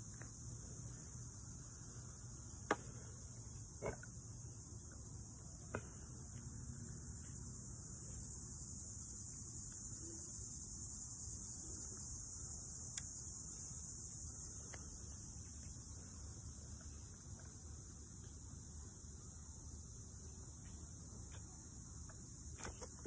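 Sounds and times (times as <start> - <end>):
insects chirping: 0.0 - 23.0.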